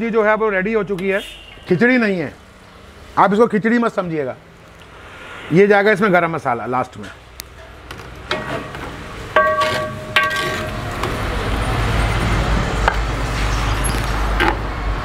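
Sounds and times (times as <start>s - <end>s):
ladle knocking on metal pot: 9.4s - 10.8s.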